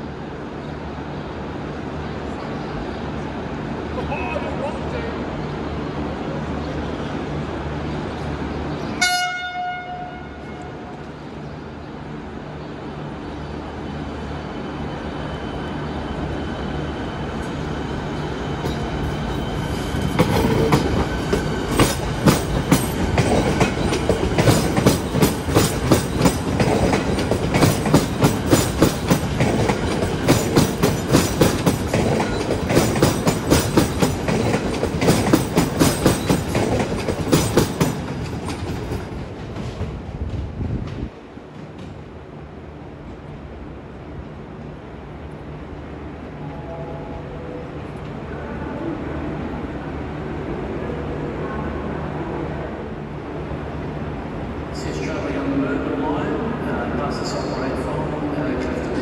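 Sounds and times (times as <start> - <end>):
electric train passing: 0.0 - 59.0
train wheels clacking: 18.6 - 42.0.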